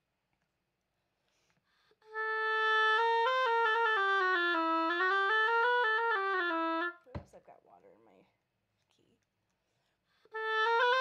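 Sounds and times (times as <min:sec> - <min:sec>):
oboe playing notes: 0:02.0 - 0:07.0, 0:10.3 - 0:11.0.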